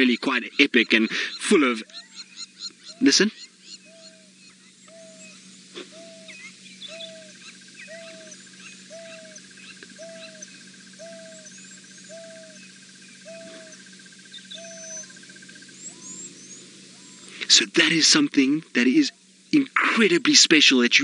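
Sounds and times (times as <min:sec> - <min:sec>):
wild dog hooting call: 0:00.0 - 0:16.3
bird chirps: 0:00.0 - 0:18.1
faint steady high trill: 0:00.0 - 0:21.0.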